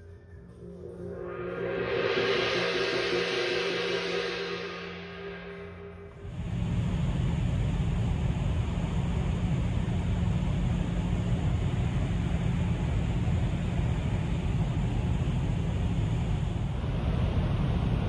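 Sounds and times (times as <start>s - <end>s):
ship engine low rumble: 6.2s - 18.0s.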